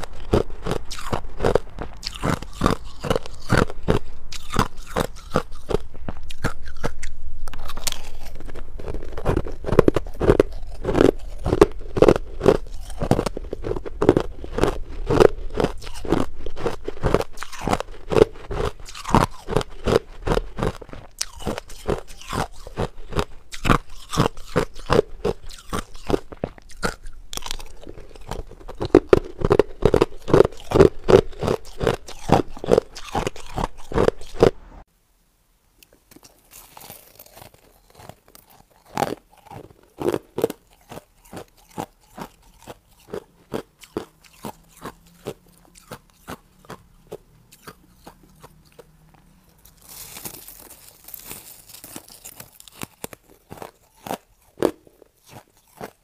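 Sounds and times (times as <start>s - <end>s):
ice being crunched and chewed: 0.0s - 34.6s, 35.8s - 56.0s.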